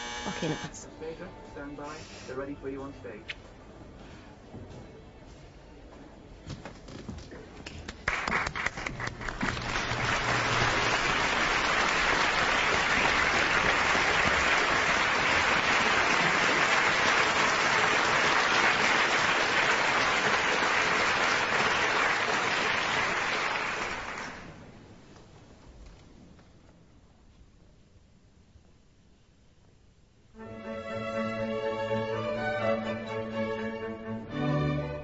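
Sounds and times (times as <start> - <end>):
audience applauding: 7.6 - 24.6.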